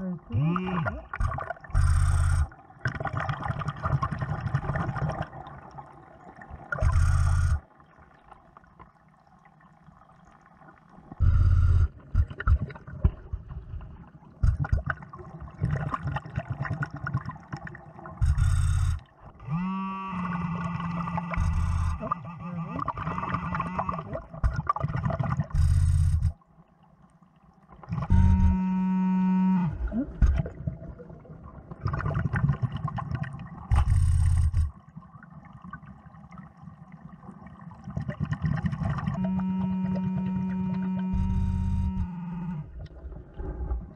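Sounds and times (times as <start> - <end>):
steady buzzing tone: 0.0 - 2.6, 6.8 - 7.7, 11.2 - 12.6, 18.2 - 24.5, 25.5 - 26.4, 27.9 - 30.4, 33.7 - 34.8, 39.0 - 42.9
exhaled bubbles underwater: 0.0 - 28.6, 29.6 - 43.9.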